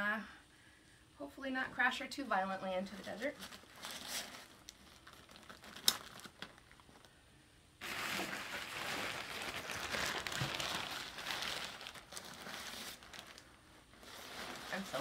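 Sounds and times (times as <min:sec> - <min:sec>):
fabric and plastic rustling: 0:02.8 - 0:07.1, 0:07.8 - 0:15.0.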